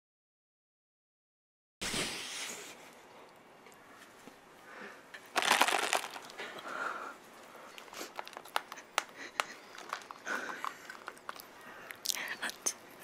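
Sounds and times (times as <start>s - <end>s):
cardboard clicks and crackles: 5.3s - 6.6s, 7.8s - 11.4s.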